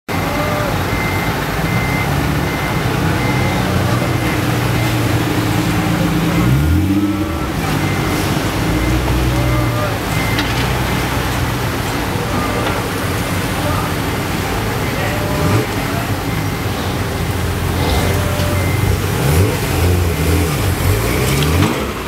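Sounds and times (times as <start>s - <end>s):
short high beeps: 0.1s - 11.3s, 17.8s - 19.5s
car engines running at low speed: 0.1s - 22.0s.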